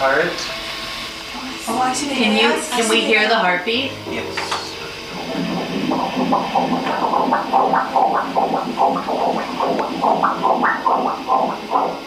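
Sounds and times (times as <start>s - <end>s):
doppler fetal heartbeat whooshing: 5.0s - 12.0s.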